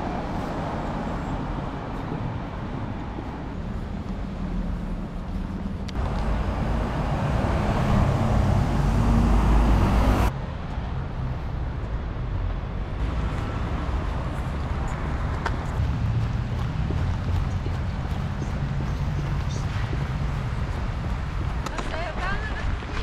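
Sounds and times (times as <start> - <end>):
city traffic rumble: 0.0 - 23.0.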